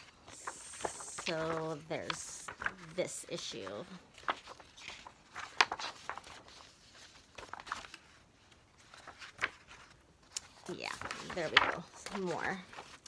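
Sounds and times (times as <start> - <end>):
paper pages rustling: 0.0 - 13.0
stiff pages snapping: 4.2 - 6.4, 10.3 - 13.0.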